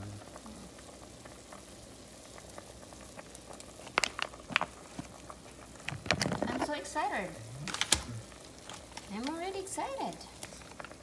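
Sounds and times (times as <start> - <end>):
soup bubbling in a pot: 0.0 - 11.0.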